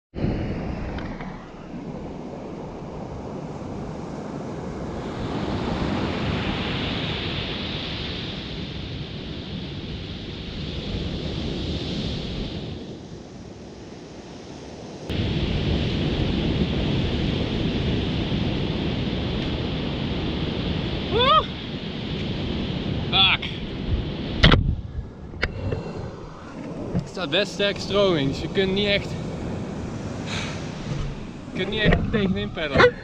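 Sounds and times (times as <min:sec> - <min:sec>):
ocean surf breaking on beach: 0:00.2 - 0:33.0
wind buffeting microphone: 0:15.0 - 0:33.0.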